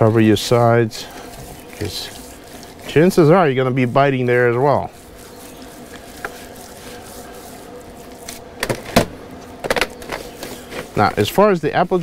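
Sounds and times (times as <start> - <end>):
hands rubbing spice into meat: 0.0 - 8.5
steady low hum: 0.0 - 12.0.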